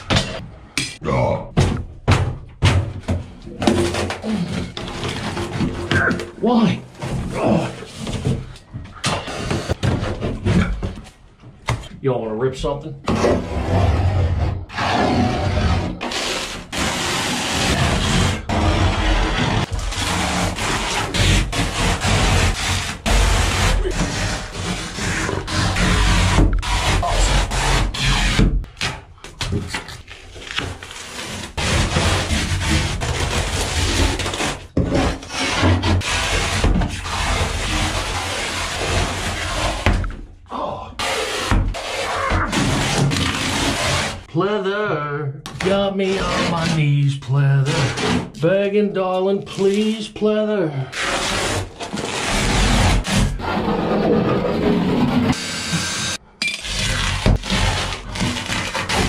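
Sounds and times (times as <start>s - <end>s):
lining being ripped off a wall: 13.1s - 40.2s, 41.0s - 44.3s, 50.9s - 55.9s, 56.6s - 59.0s.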